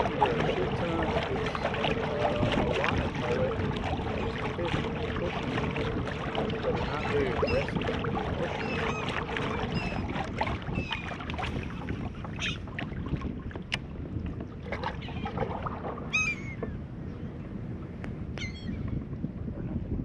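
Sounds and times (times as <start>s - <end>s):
water moving around kayak hull: 0.0s - 20.0s
wind on microphone: 0.0s - 20.0s
bird calling: 6.2s - 7.8s, 8.4s - 11.2s, 16.1s - 16.8s, 18.4s - 18.8s.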